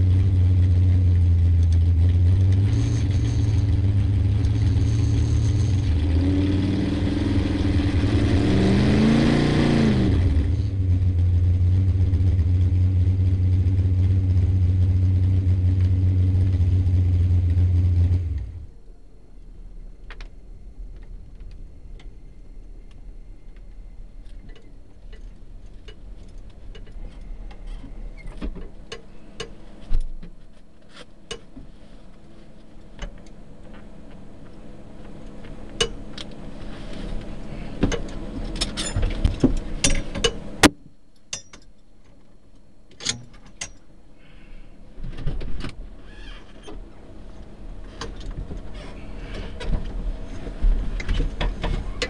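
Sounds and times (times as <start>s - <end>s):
low steady rumble: 0.0s - 52.0s
clicks knocks and rattles in car cabin: 37.8s - 42.3s, 51.0s - 52.0s.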